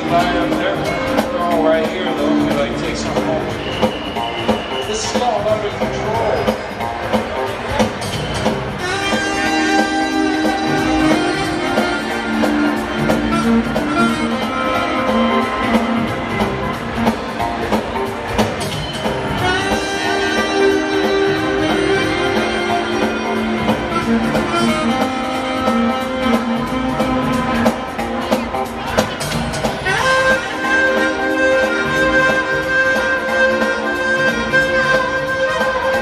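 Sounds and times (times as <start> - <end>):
backing track of guitar and drums: 0.0 - 36.0
saxophone melody: 8.0 - 36.0.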